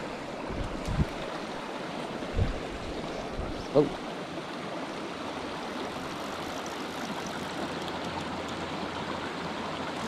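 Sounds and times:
creek water rushing: 0.0s - 10.0s.

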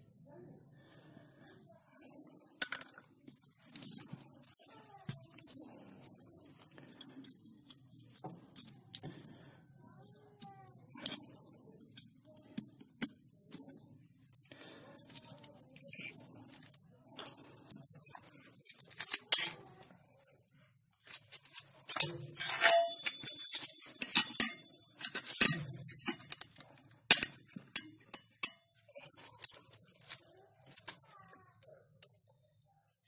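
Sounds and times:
metal bowl clinking on wire stand: 21.9s - 26.4s, 27.1s - 28.7s.

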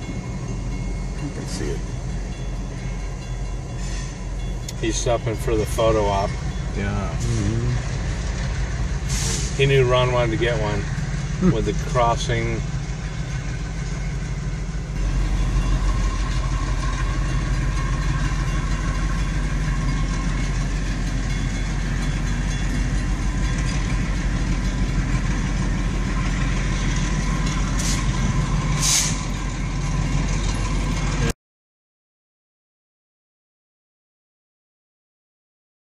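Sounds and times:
diesel locomotive engine rumble: 0.0s - 31.4s
short air hisses: 9.1s - 9.6s, 27.8s - 28.2s, 28.8s - 29.3s.

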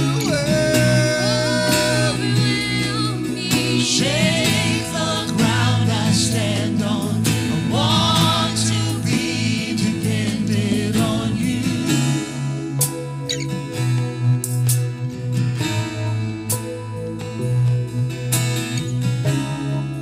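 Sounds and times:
singers singing with vibrato: 0.0s - 12.7s
band playing guitars: 0.0s - 20.0s.

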